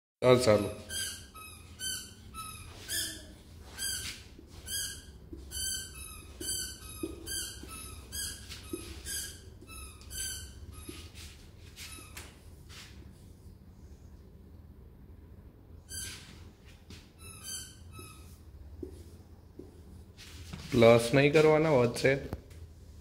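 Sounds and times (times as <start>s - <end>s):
marker squeaking on whiteboard: 0.6s - 12.9s, 15.8s - 20.9s.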